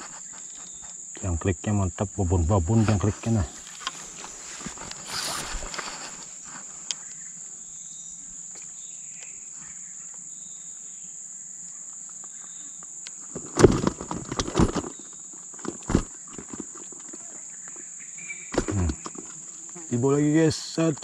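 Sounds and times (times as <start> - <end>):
insects droning high-pitched: 0.0 - 21.0
loud close rustling and knocks: 13.3 - 15.0, 15.6 - 16.8.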